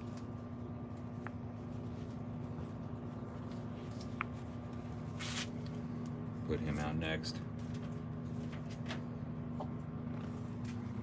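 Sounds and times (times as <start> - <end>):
hand rustling rabbit fur: 0.0 - 6.1
steady low hum: 0.0 - 11.0.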